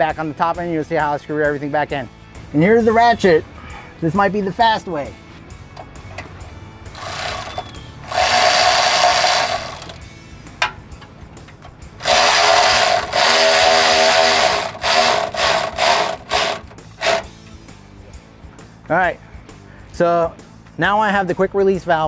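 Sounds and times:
power ratchet whirring: 6.9 - 10.1, 12.0 - 17.4.

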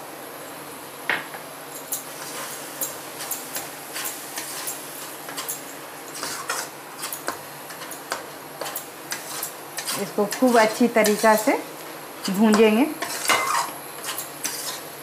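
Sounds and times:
spatula scraping a steel pan: 8.6 - 11.5, 13.0 - 14.8.

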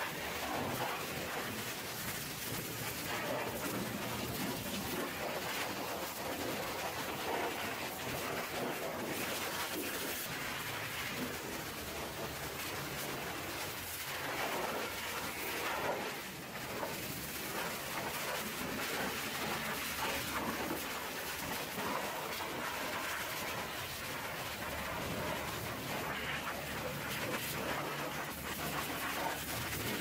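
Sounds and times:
pressure washer spraying metal: 0.1 - 8.2.

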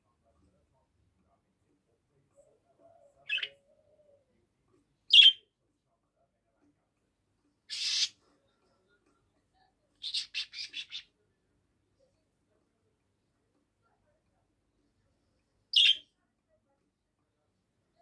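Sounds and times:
harsh budgerigar squawk: 7.7 - 8.2, 10.0 - 11.1.

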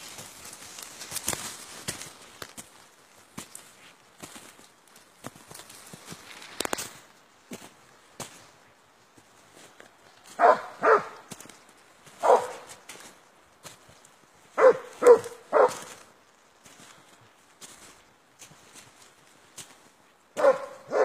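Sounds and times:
dog barking: 10.4 - 11.3, 12.2 - 12.7, 14.6 - 16.0, 20.4 - 21.0.

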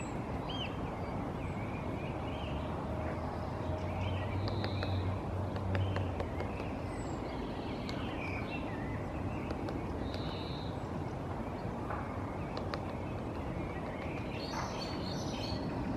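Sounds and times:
small birds chirping: 0.0 - 15.9
woodpecker tapping on bark: 4.4 - 6.9, 7.8 - 8.1, 9.4 - 10.5, 11.9 - 15.0.

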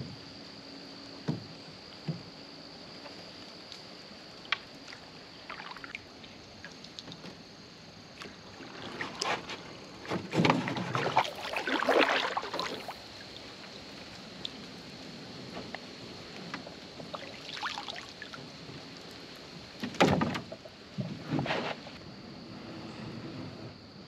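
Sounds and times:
paddle strokes splashing water: 8.2 - 19.5.

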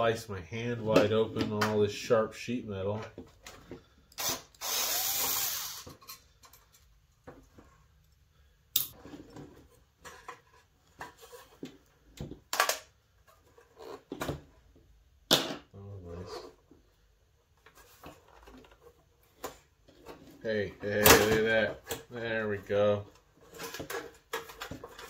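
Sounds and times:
cordless screwdriver running: 4.2 - 5.9.

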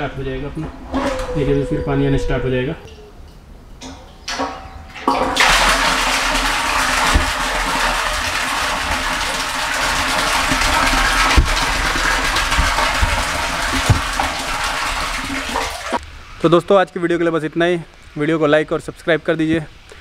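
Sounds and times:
water pouring into a plastic tank: 5.0 - 16.0.

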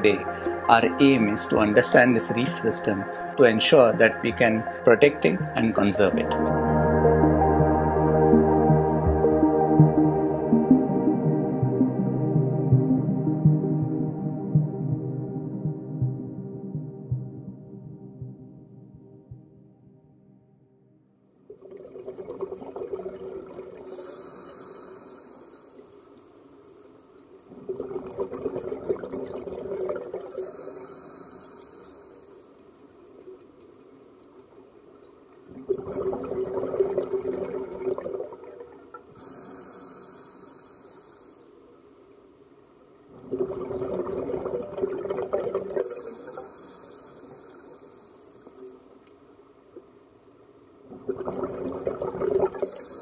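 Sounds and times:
exhaled bubbles rushing: 21.5 - 24.1, 27.5 - 30.7, 35.5 - 39.2, 43.1 - 46.5, 50.8 - 53.0
regulator inhalation hiss: 23.9 - 26.6, 30.4 - 32.6, 39.2 - 41.6, 45.8 - 48.7, 52.6 - 53.0.

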